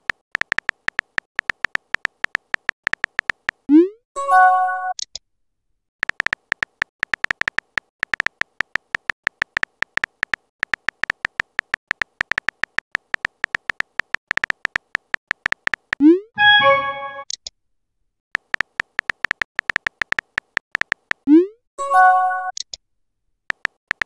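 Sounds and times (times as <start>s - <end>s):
phone keyboard taps: 0.0s - 3.6s, 6.0s - 16.0s, 18.4s - 21.2s, 23.5s - 24.0s
short multi-tone chime: 16.4s - 17.2s.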